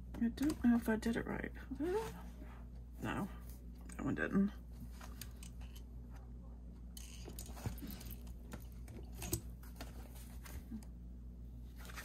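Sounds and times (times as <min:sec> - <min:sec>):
steady low hum: 0:00.0 - 0:12.0
paper rustling: 0:11.7 - 0:12.0.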